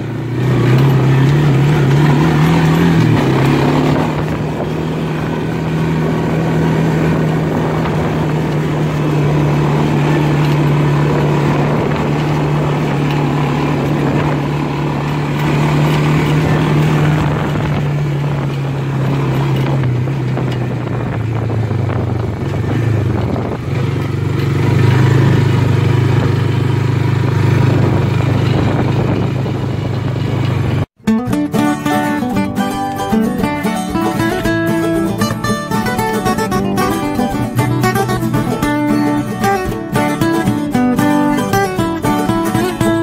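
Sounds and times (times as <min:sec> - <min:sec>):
acoustic guitar music: 0:00.0 - 0:21.5, 0:30.4 - 0:43.0
atv engine running: 0:00.0 - 0:43.0.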